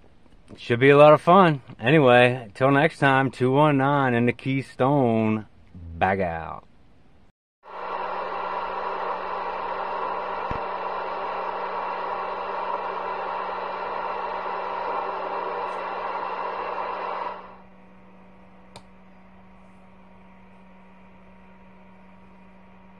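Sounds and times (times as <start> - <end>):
low hum: 6.9 - 22.9
radio static hissing: 7.7 - 17.6.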